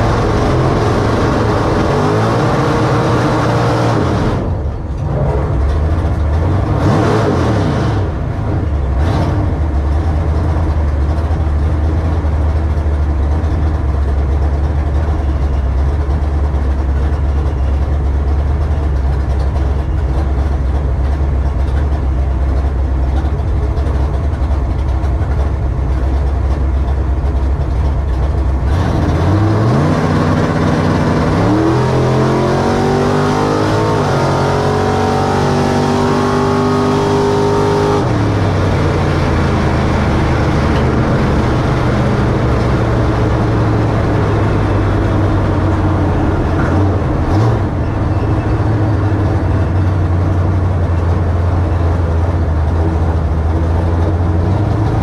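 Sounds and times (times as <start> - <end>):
truck engine idling and revving: 0.0 - 55.0.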